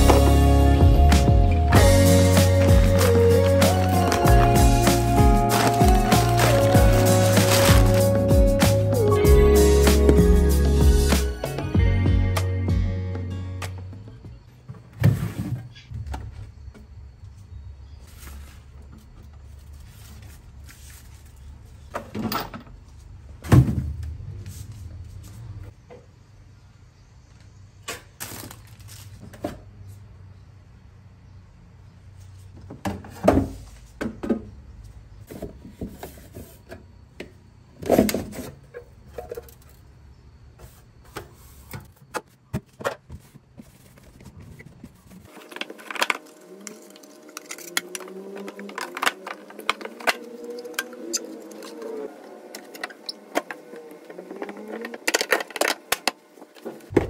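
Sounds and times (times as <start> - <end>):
cloth wiping plastic: 2.2 - 8.3
plastic shelves clicking and clattering: 52.6 - 57.0.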